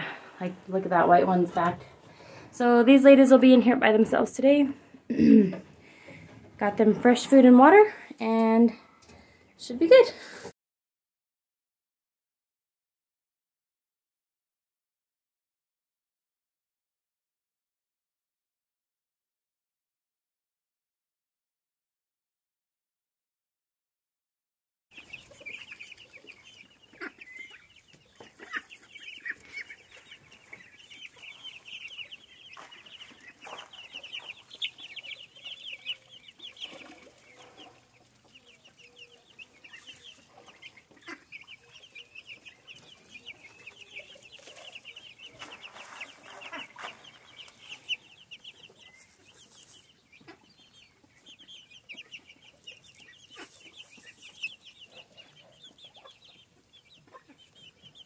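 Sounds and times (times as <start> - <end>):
chicks peeping: 24.9 - 58.0
rustling in straw: 42.8 - 47.8, 48.9 - 49.9, 52.9 - 54.4.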